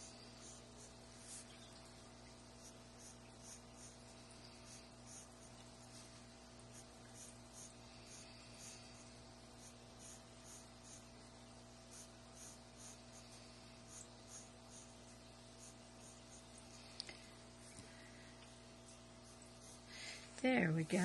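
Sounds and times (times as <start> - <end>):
pencil scratching on paper: 0.0 - 1.5, 2.6 - 4.0, 4.6 - 6.0, 6.7 - 11.1, 11.9 - 16.8, 18.8 - 19.9.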